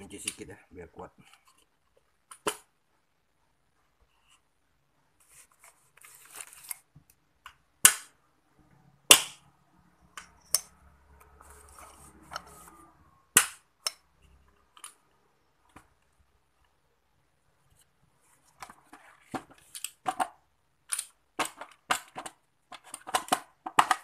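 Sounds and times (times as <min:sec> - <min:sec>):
metal scraping: 0:10.0 - 0:13.3.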